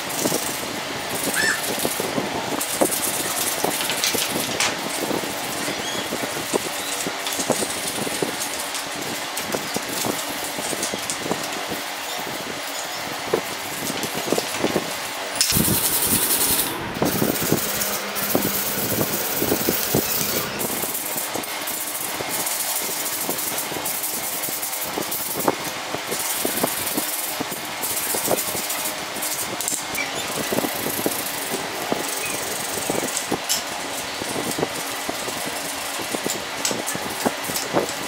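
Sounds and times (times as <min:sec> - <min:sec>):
sanding metal parts: 0:15.4 - 0:25.5.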